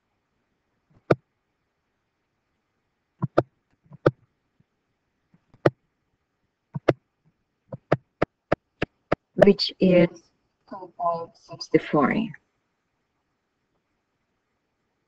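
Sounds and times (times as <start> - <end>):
computer mouse clicking: 3.2 - 4.2, 6.8 - 7.0, 7.7 - 9.3.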